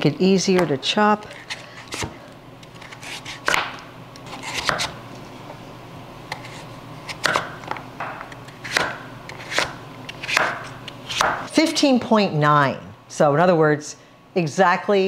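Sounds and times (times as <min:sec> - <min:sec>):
knife slicing squash: 0:01.3 - 0:05.0, 0:06.3 - 0:07.6, 0:08.6 - 0:11.5.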